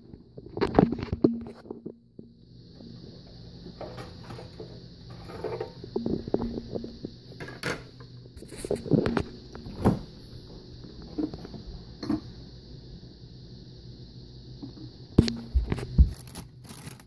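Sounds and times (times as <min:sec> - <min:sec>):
faint steady hum: 0:00.0 - 0:17.0
pots and plates clanking: 0:03.8 - 0:07.9.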